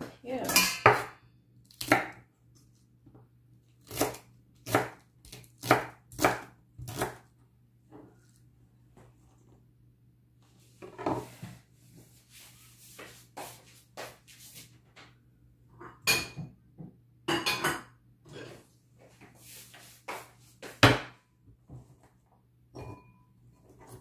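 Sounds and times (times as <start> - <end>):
utensils and bowls clinking: 0.4 - 1.0.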